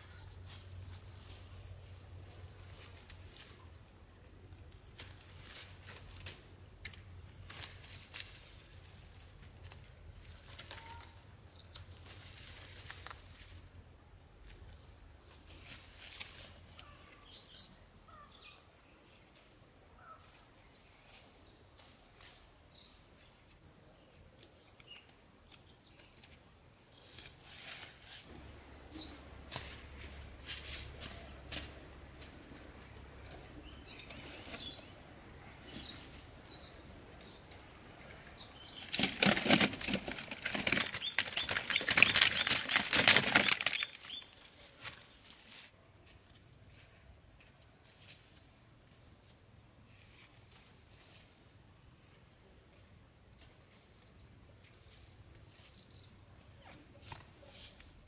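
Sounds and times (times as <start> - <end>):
insects droning: 0.0 - 58.0
faint chirps: 28.3 - 42.6.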